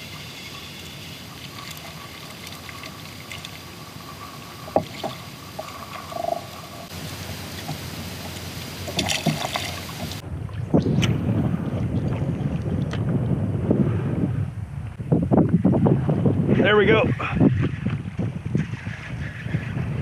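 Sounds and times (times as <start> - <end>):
water lapping against kayak hull: 0.0 - 13.2, 17.1 - 20.0
wind: 0.0 - 20.0
knocks and clicks on boat: 4.7 - 6.6, 7.5 - 10.2.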